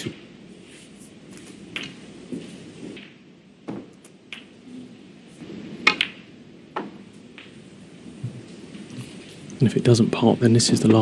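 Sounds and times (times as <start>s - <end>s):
snooker balls clicking: 1.7s - 4.6s, 5.9s - 7.6s.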